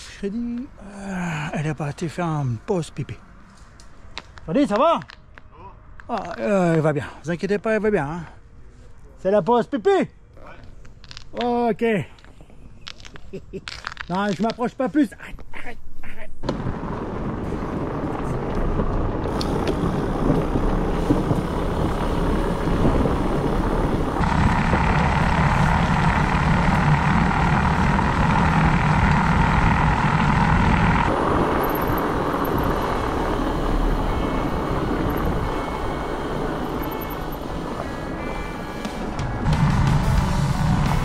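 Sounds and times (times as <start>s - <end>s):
wind buffeting microphone: 16.4s - 38.2s
bike tyres rolling over trail: 16.4s - 41.0s.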